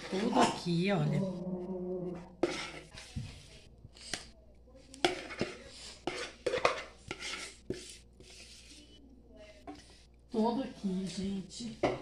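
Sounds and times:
spoon scraping a bowl: 0:02.1 - 0:03.1, 0:05.0 - 0:09.0.

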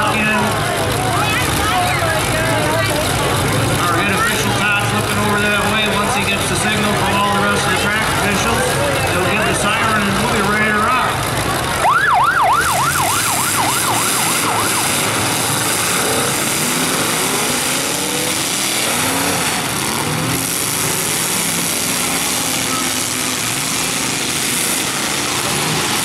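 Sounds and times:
car engines revving: 0:00.0 - 0:26.0
crowd din: 0:00.0 - 0:26.0
siren warbling rapidly: 0:11.8 - 0:15.6.

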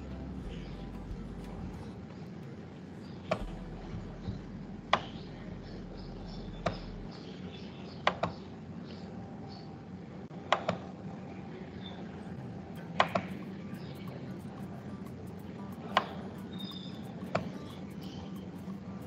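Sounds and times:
low hiss and hum: 0:00.0 - 0:19.0.

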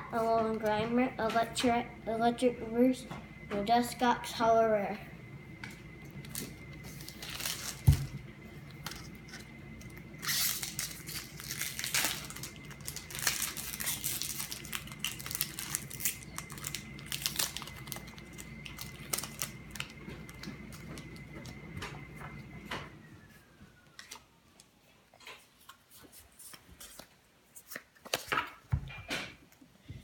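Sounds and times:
foil pack crinkling: 0:06.2 - 0:21.6.

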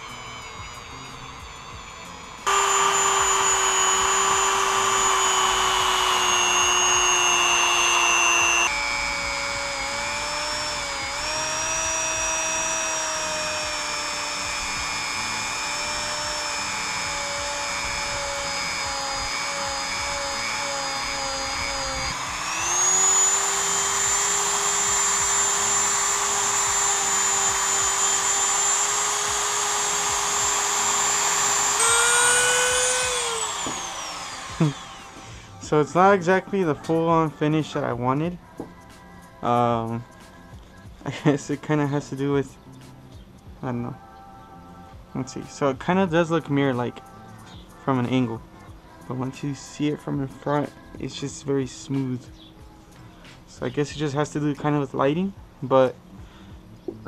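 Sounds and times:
rotary tool grinding metal: 0:00.0 - 0:38.2.

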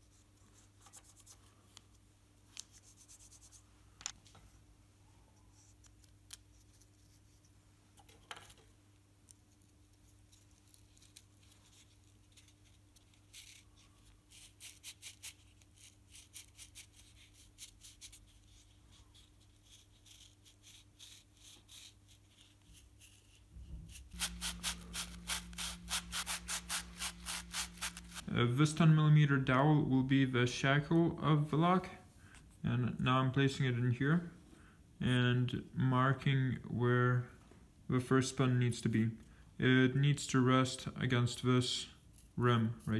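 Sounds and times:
sanding wood by hand: 0:19.6 - 0:28.2.

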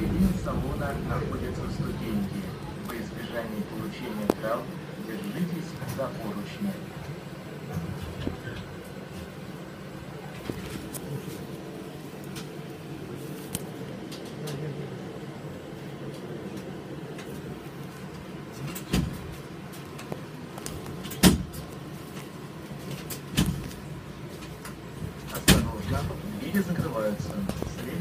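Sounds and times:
tram hum: 0:00.0 - 0:28.0.

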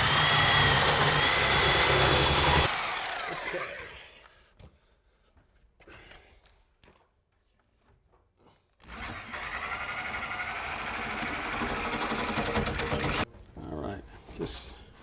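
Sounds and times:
reciprocating saw cutting metal pipe: 0:00.0 - 0:03.9.

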